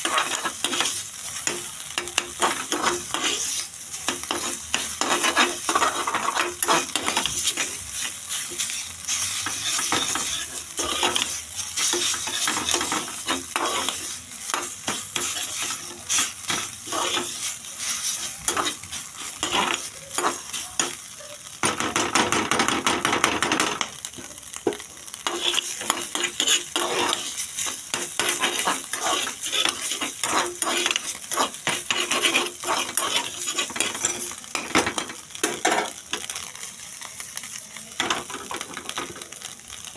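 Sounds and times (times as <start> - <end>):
metal spatula scraping a pan: 0.0 - 21.0, 25.2 - 36.0
egg sizzling in a pan: 0.0 - 39.9.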